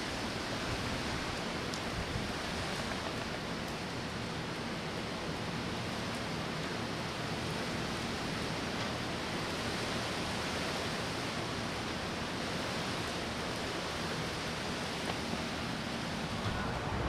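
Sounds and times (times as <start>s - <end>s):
steady outdoor rushing noise: 0.0s - 17.0s.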